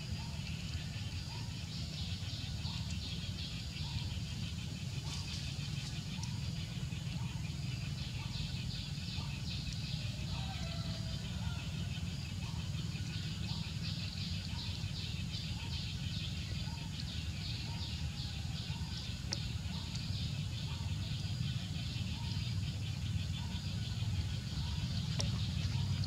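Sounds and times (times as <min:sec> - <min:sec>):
steady low rumble: 0:11.6 - 0:26.0.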